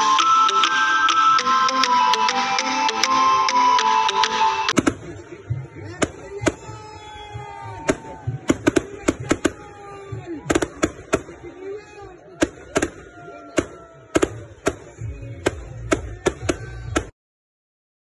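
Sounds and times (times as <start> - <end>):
fireworks bursting: 12.4 - 17.1.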